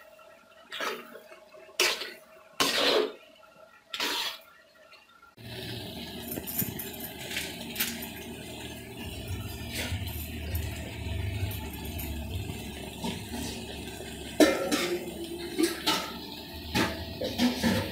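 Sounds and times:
low steady hum: 0:04.7 - 0:17.9.

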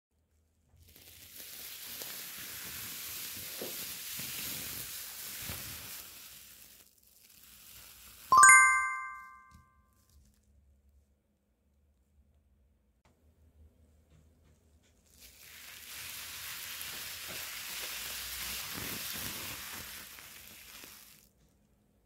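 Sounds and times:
ringing notification chime: 0:08.3 - 0:09.6.

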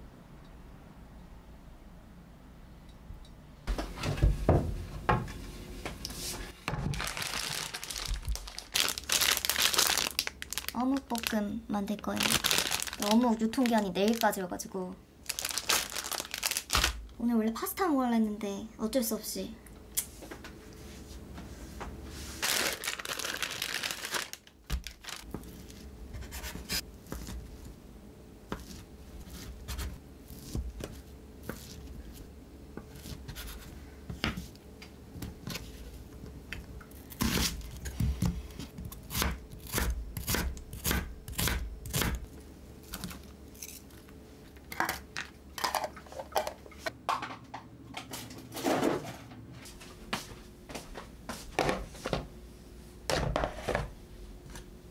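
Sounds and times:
plastic package tearing: 0:06.8 - 0:11.4, 0:12.1 - 0:14.4, 0:15.2 - 0:17.0, 0:22.4 - 0:25.3.

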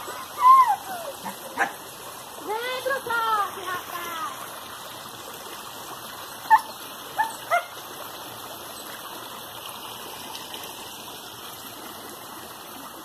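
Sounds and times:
dog yelping: 0:00.0 - 0:01.8, 0:06.5 - 0:07.8
forest stream running: 0:00.0 - 0:13.0.

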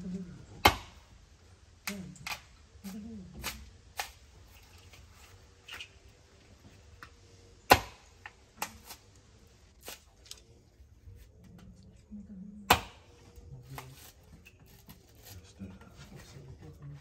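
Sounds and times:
machete hacking coconut husk: 0:00.6 - 0:01.1, 0:02.2 - 0:05.8, 0:07.6 - 0:09.1, 0:09.8 - 0:10.4, 0:12.7 - 0:15.4.

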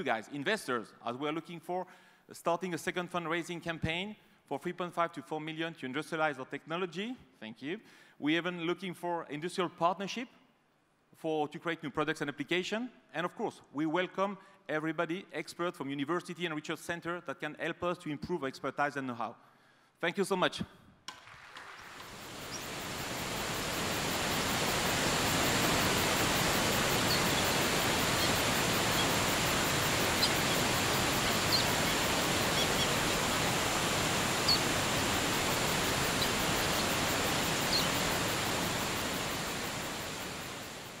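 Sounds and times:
waterfall rushing: 0:21.8 - 0:41.0
bird chirps: 0:22.2 - 0:22.8, 0:23.7 - 0:33.6, 0:34.3 - 0:34.7, 0:35.4 - 0:38.1.

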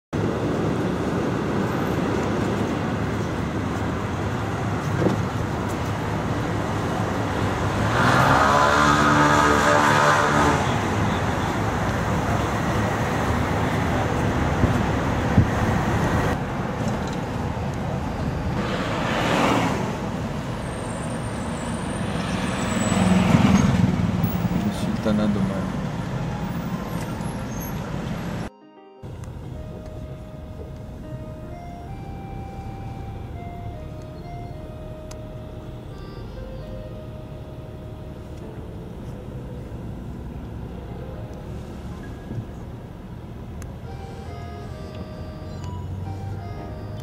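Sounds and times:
city road traffic: 0:00.1 - 0:47.0
engine humming past: 0:00.2 - 0:47.0
vehicle swishing by: 0:04.5 - 0:17.4, 0:18.0 - 0:28.5.

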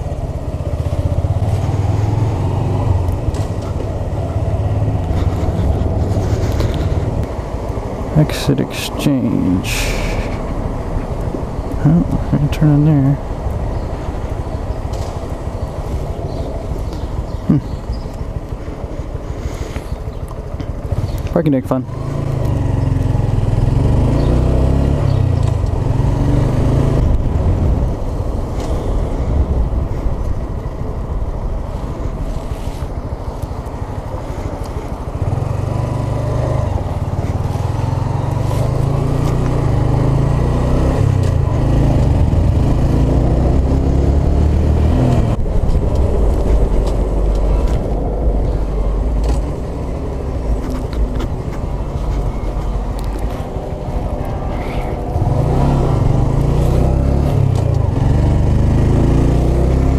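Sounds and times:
motorcycle engine revving: 0:00.0 - 0:07.6, 0:19.9 - 0:29.6, 0:32.2 - 0:49.7, 0:50.3 - 0:59.9
wind rumbling on microphone: 0:00.0 - 0:08.2, 0:22.1 - 0:59.9.

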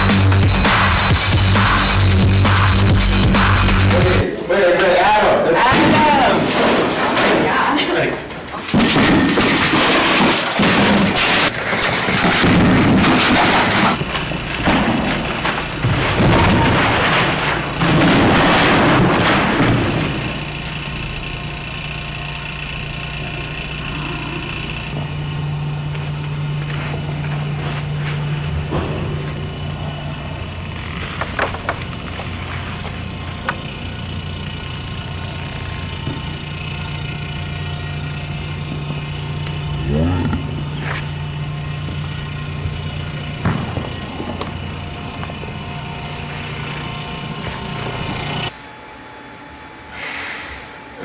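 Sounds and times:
steady low hum: 0:00.0 - 0:51.0.

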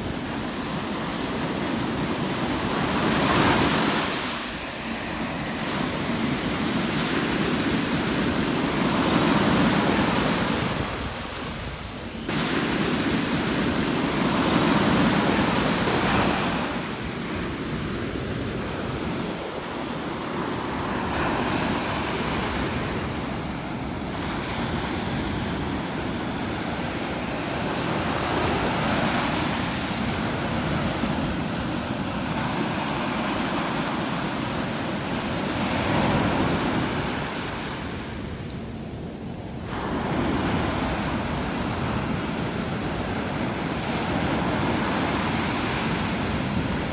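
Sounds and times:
waves washing on shore: 0:00.0 - 0:46.9.

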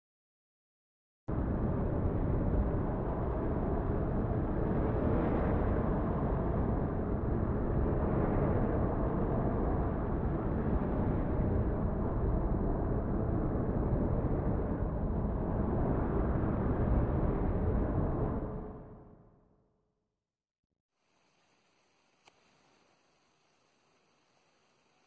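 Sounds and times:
low rumbling wind noise: 0:01.3 - 0:19.5.

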